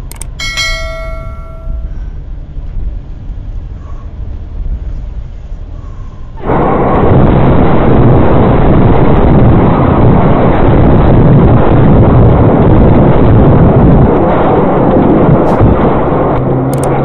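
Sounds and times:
wind and road noise inside car: 0.0s - 17.0s.

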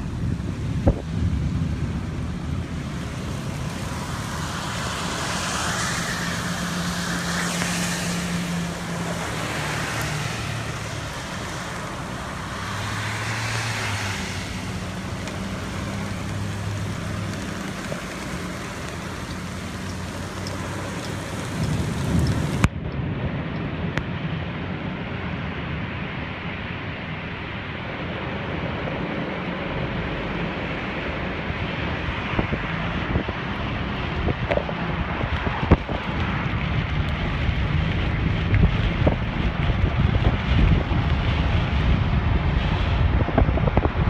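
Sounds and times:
rain beating on a car: 0.0s - 23.9s, 29.2s - 44.0s
car engine idling: 8.7s - 22.7s.

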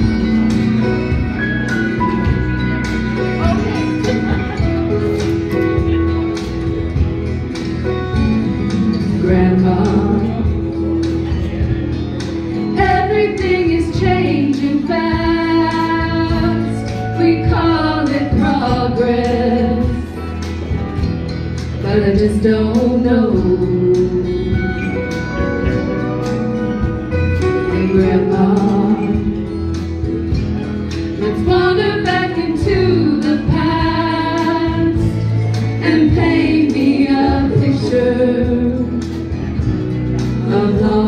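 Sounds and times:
electric guitar: 0.0s - 41.0s
women singing in harmony: 9.0s - 10.6s, 12.7s - 20.2s, 21.8s - 24.6s, 27.6s - 29.4s, 31.2s - 39.1s, 40.4s - 41.0s.

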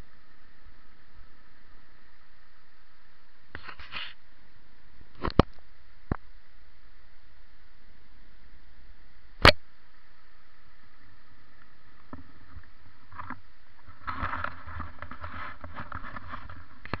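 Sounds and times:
background hiss: 0.0s - 17.0s
bike tyres crackling over dirt: 11.0s - 17.0s.

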